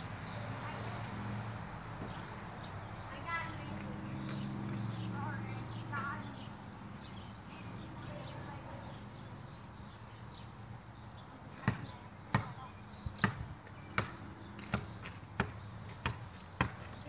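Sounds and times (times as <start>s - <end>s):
basketball bouncing: 11.6s - 17.0s.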